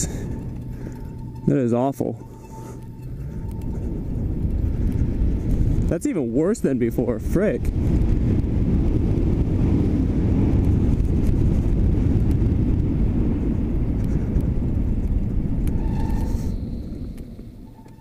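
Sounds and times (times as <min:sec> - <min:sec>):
faint high brake squeal: 0:00.0 - 0:05.2, 0:15.6 - 0:18.0
wind rumbling over microphone: 0:00.0 - 0:18.0.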